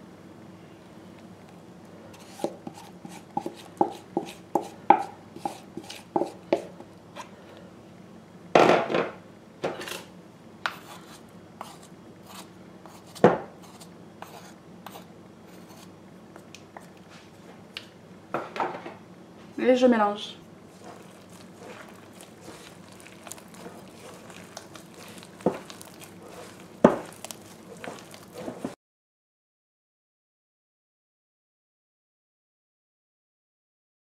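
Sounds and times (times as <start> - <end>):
spatula scraping glass bowl: 5.4 - 6.4, 20.7 - 28.8
metal spoon scraping bowl: 20.7 - 28.8.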